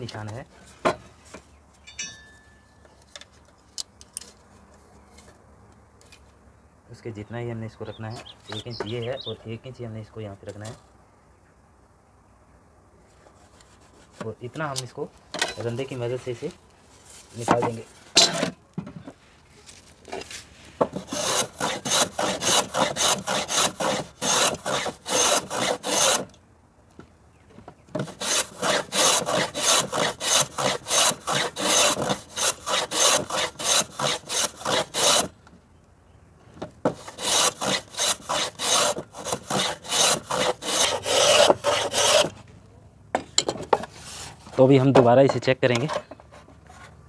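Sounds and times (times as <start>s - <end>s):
hand plane rasping strokes: 20.9s - 26.3s, 28.0s - 35.3s, 36.9s - 42.4s, 43.8s - 44.5s.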